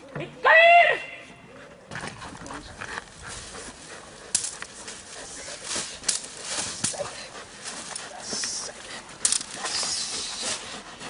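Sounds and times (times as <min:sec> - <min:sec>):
flag stick rustling: 0:03.4 - 0:10.9
sharp cracks: 0:09.2 - 0:10.6.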